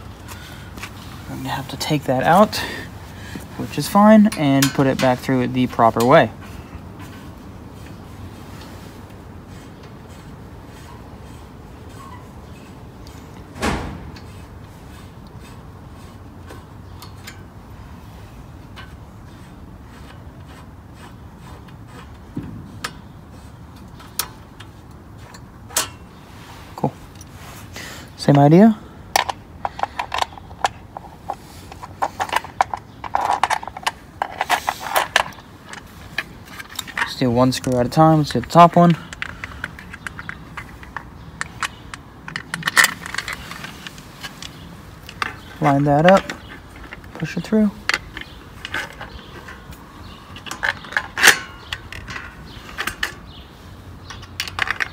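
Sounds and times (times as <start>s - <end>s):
small metallic clicks: 29.2s - 53.4s, 54.0s - 54.9s.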